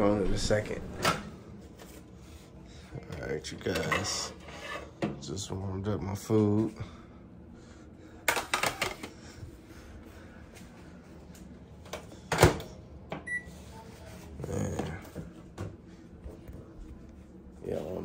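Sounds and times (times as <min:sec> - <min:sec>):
short microwave beep: 0:13.2 - 0:13.5.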